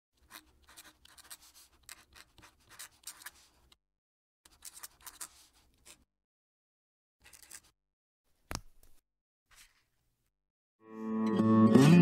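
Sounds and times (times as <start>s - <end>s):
pen nib scratching on paper: 0.2s - 3.8s, 4.5s - 6.1s.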